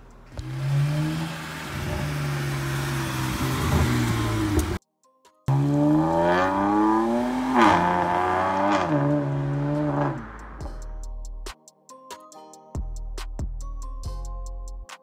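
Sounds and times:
car engine accelerating hard: 0:00.0 - 0:04.8, 0:05.5 - 0:10.6
electronic music with ticking beat: 0:05.3 - 0:15.0.

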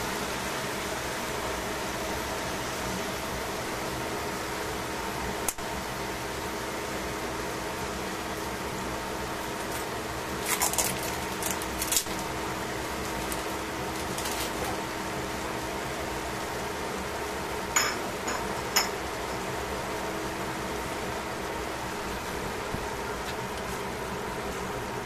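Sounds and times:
mechanical hum: 0:00.0 - 0:25.0
food crackling in a pan: 0:09.4 - 0:15.1.

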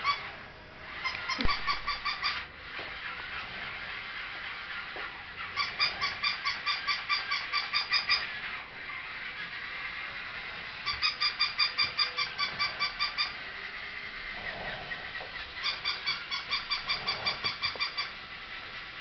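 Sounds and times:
toy dog electronic yapping: 0:00.0 - 0:00.3, 0:00.9 - 0:03.4, 0:04.6 - 0:13.5, 0:15.0 - 0:18.5.

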